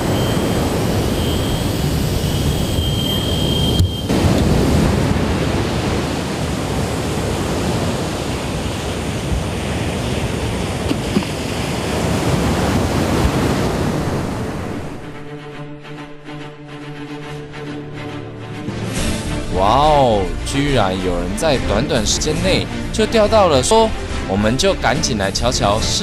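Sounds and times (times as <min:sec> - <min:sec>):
surf breaking on beach: 0:00.0 - 0:02.7, 0:03.6 - 0:15.0
background music: 0:14.4 - 0:26.0.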